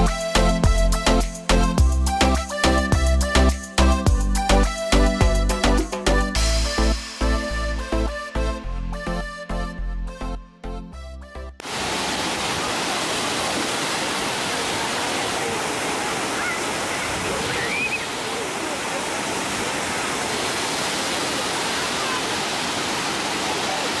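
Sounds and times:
water rushing over dam spillway: 11.6s - 24.0s.

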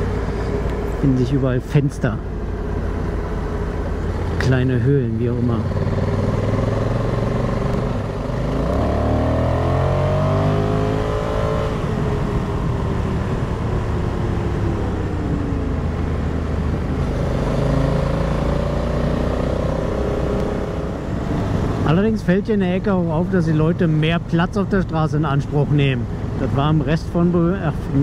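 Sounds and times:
motorcycle engine accelerating: 0.0s - 22.0s
wind and road noise: 0.0s - 28.0s.

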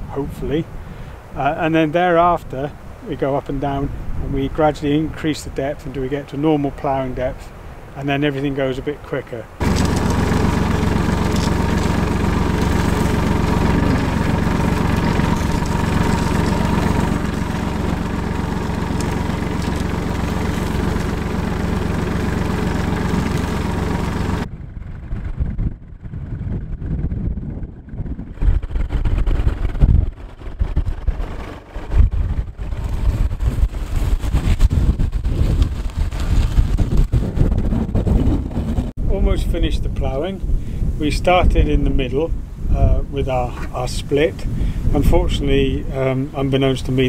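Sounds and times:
tractor diesel engine running: 9.5s - 39.0s
wind buffeting microphone: 9.6s - 47.0s.

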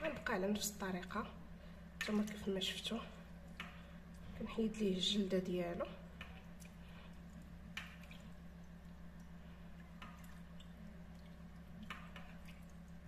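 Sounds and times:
steady low hum: 0.0s - 13.0s
water drips: 2.0s - 4.8s, 5.8s - 13.0s
wet squelches: 6.0s - 13.0s.

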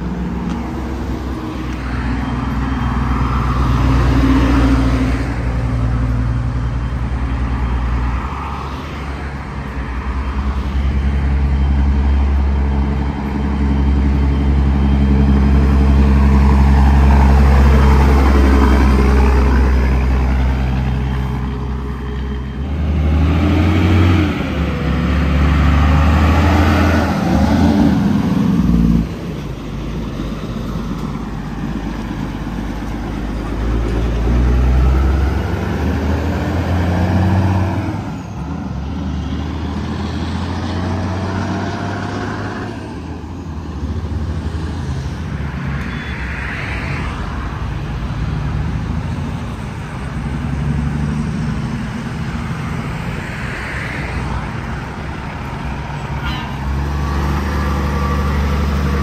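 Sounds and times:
diesel truck engines: 0.0s - 59.0s
road traffic passing: 0.0s - 59.0s.

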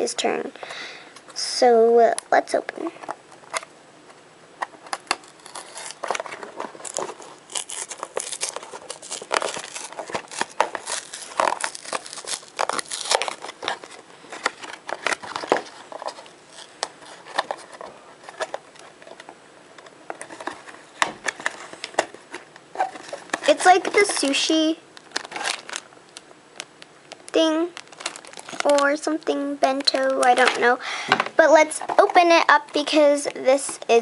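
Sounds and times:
cardboard and paper rustling: 4.8s - 19.3s, 20.1s - 25.8s, 27.3s - 33.8s
paper tearing: 5.2s - 15.4s.

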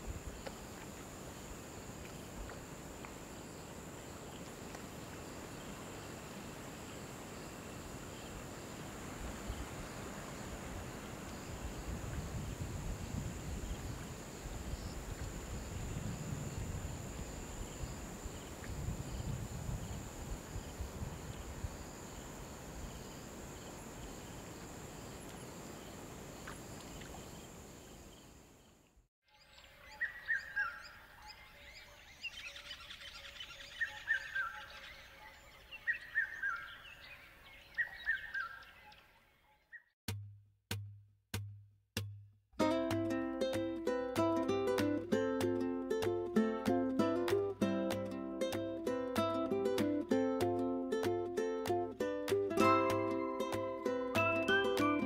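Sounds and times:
music with bird-like chirps: 29.3s - 36.9s, 42.6s - 55.0s.

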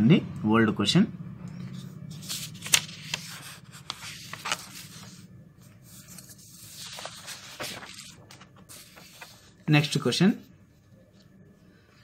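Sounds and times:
paper rustling and crinkling: 1.8s - 10.1s.

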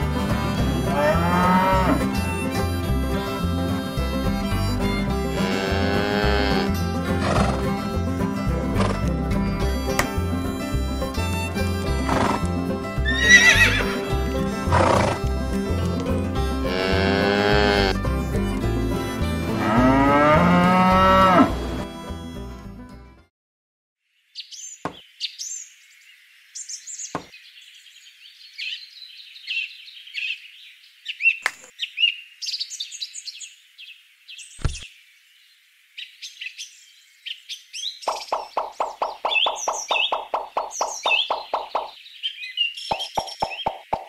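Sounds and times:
songbirds chirping: 0.0s - 21.5s, 24.0s - 44.0s
background music with beat: 0.0s - 22.8s
cow mooing: 0.8s - 2.2s, 5.3s - 7.6s, 16.6s - 18.0s, 19.5s - 21.7s.

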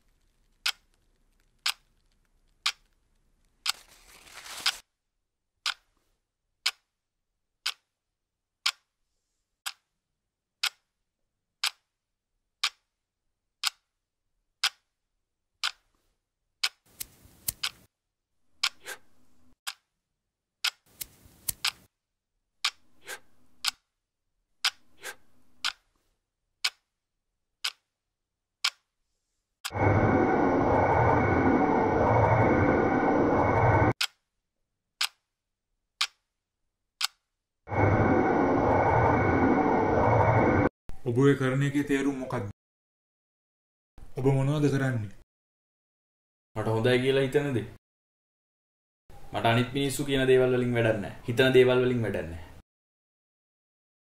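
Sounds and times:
clock ticking: 0.6s - 0.9s, 1.6s - 1.9s, 2.6s - 2.9s, 5.6s - 6.0s, 6.6s - 7.0s, 7.6s - 8.0s, 8.6s - 9.0s, 9.6s - 9.9s, 10.6s - 10.9s, 11.6s - 11.9s, 12.6s - 12.9s, 13.6s - 13.9s, 14.6s - 14.9s, 15.6s - 15.9s, 16.6s - 16.8s, 20.6s - 20.8s, 21.5s - 21.8s, 23.6s - 23.8s, 25.6s - 25.8s, 26.6s - 26.9s, 27.6s - 27.9s, 28.6s - 28.9s, 35.0s - 35.2s, 36.0s - 36.2s
low hum: 29.7s - 34.0s, 37.7s - 40.7s.

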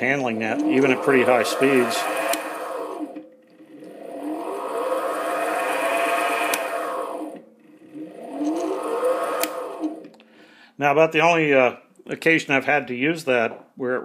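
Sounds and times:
lathe motor whine: 0.0s - 10.3s.

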